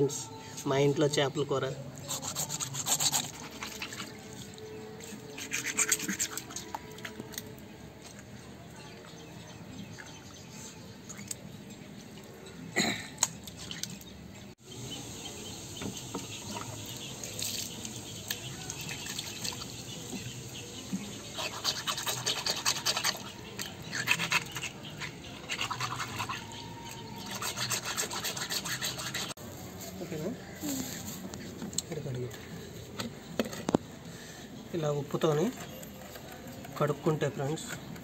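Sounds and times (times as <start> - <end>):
fish scrubbed on concrete: 2.1 - 4.5, 5.1 - 6.8, 21.3 - 26.6, 27.2 - 29.4
water trickling and splashing: 2.1 - 29.4.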